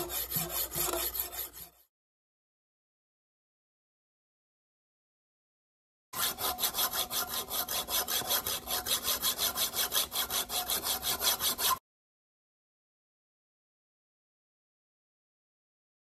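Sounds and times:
hacksaw rasping on shell: 0:00.0 - 0:01.9, 0:06.2 - 0:11.8.

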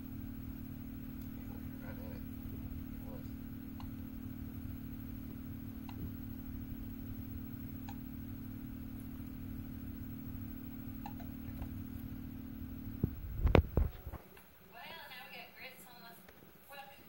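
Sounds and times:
video playback hum and hiss: 0:00.0 - 0:17.0.

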